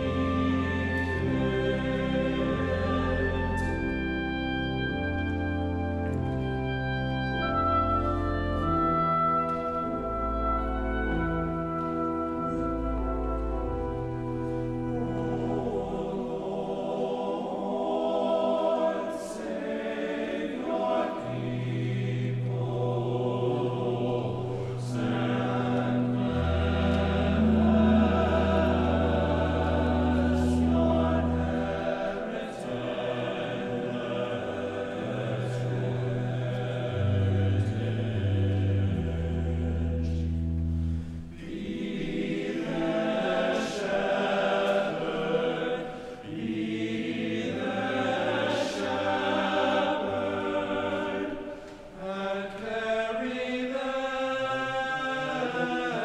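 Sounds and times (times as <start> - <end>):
choir singing: 0.0 - 56.0
deep sustained low notes: 21.6 - 31.9.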